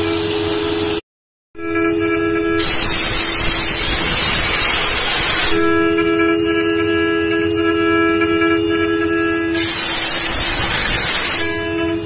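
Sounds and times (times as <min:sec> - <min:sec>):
engraving machine spindle whine: 0:01.6 - 0:12.0
loud hiss: 0:02.6 - 0:05.9, 0:09.6 - 0:11.6.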